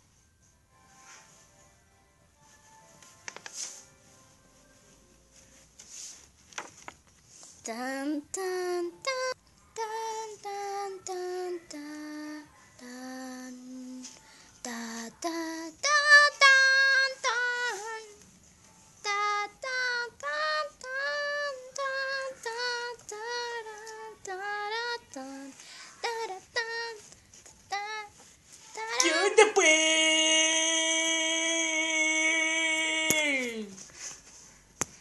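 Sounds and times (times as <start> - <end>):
child singing: 7.6 - 18.2, 19.0 - 33.8.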